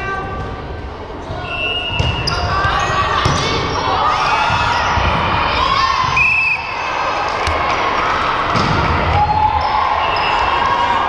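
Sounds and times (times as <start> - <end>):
sneakers squeaking on court: 1.1 - 5.2
volleyball being hit: 8.5 - 9.2.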